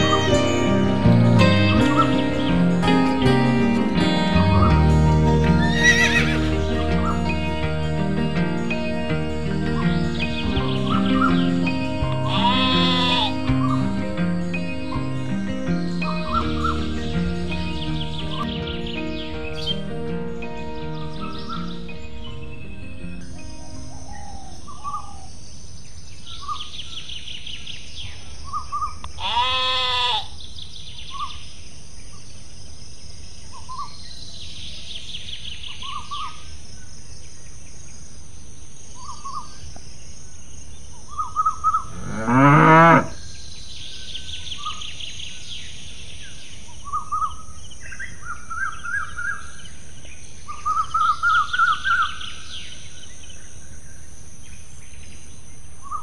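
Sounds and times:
bird chirps: 4.0 - 29.2, 30.2 - 56.0
insect trilling: 5.6 - 6.5, 12.2 - 13.8
animal bleat: 5.6 - 6.6, 12.2 - 13.5, 29.2 - 30.4
cow mooing: 12.3 - 13.4, 41.9 - 43.2.

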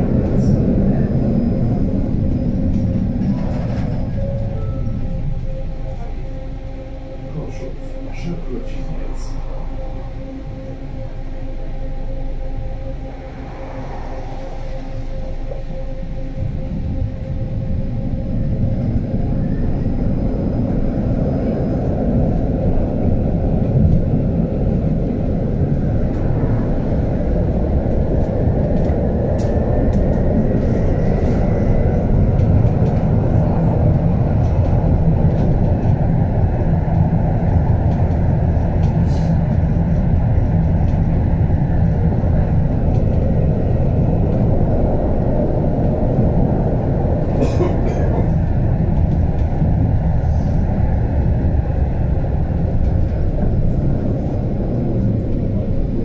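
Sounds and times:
faint rising whine: 0.0 - 38.8
tram wheels rumbling on rail: 0.0 - 56.0.

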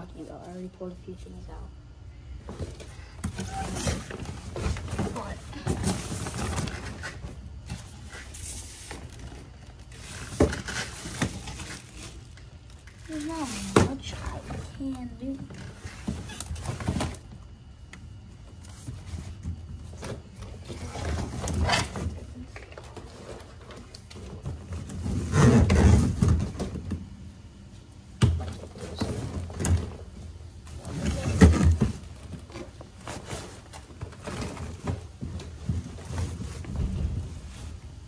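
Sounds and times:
items rustling in plastic box: 2.5 - 17.4, 28.5 - 38.0.

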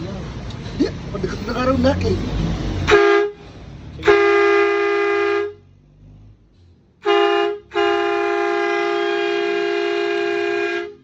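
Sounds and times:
twin-trumpet air horn blasts: 2.9 - 3.4, 4.0 - 5.6, 7.0 - 11.0.

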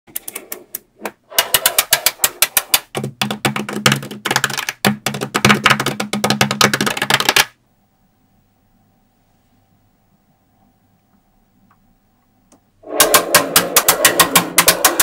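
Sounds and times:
magnetic balls clicking together: 0.1 - 7.6
low steady hum: 7.6 - 14.9.

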